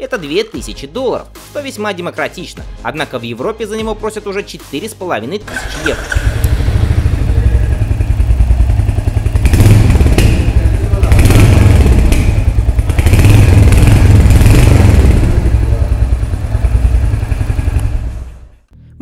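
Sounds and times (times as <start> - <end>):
motorcycle engine revving: 5.4 - 18.7.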